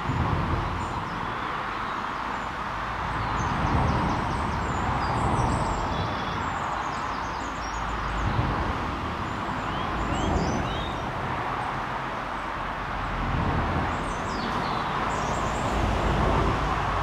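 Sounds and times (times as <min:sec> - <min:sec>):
rushing outdoor background noise: 0:00.0 - 0:17.0
small birds chirping: 0:00.8 - 0:11.2, 0:13.9 - 0:15.8.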